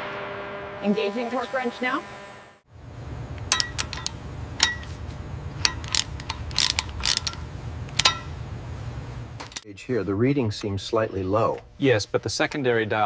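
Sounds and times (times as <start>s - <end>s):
steady low hum: 0.0s - 12.6s
wrench ratcheting metallic clicks: 5.6s - 8.3s.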